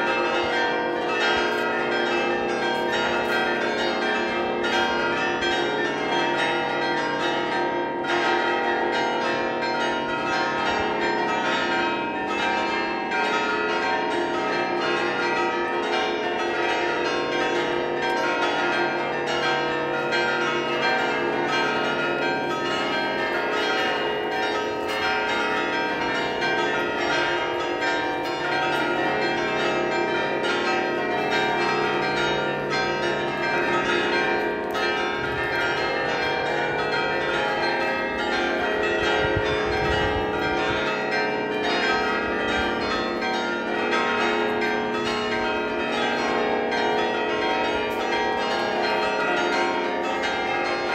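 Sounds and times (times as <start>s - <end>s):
church bells ringing a peal: 0.0s - 50.9s.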